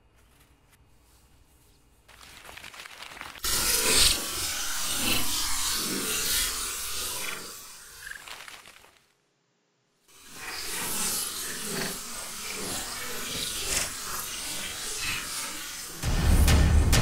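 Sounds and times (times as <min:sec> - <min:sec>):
music hit with heavy drum: 0:16.0 - 0:17.0.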